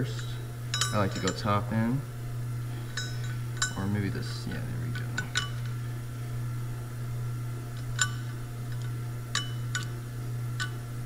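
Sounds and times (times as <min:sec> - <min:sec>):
light metallic clinks: 0:00.0 - 0:01.6, 0:02.8 - 0:04.0, 0:04.9 - 0:05.8, 0:07.8 - 0:10.0
steady low hum: 0:00.0 - 0:11.0.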